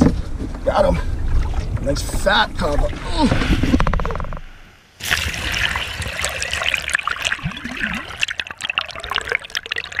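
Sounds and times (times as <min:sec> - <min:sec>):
seawater splashing and gurgling: 0:05.0 - 0:10.0.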